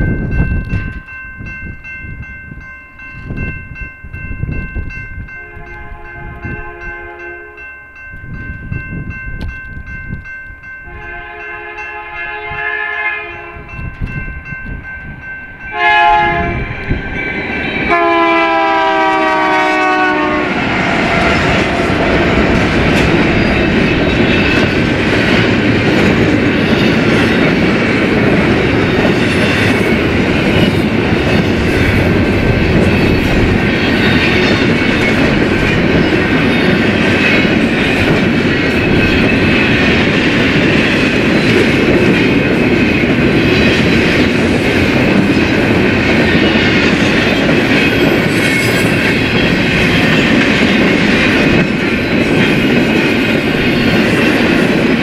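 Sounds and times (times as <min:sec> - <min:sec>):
train cars rumbling and clattering: 0:00.0 - 0:55.0
train horn blasts: 0:05.4 - 0:07.6, 0:10.9 - 0:13.8, 0:15.7 - 0:22.4.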